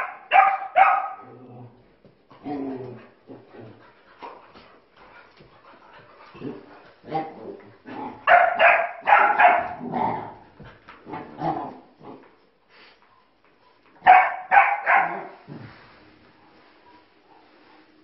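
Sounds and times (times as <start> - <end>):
young dogs barking: 0.0 - 1.3, 8.2 - 9.8, 14.0 - 15.4.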